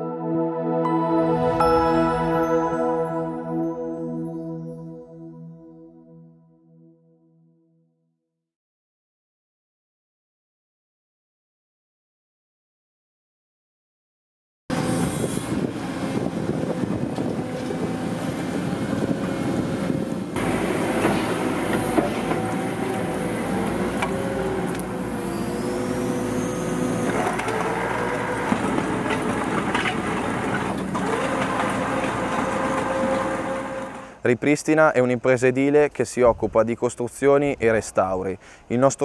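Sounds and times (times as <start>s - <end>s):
excavator engine and hydraulics: 14.7s - 34.3s.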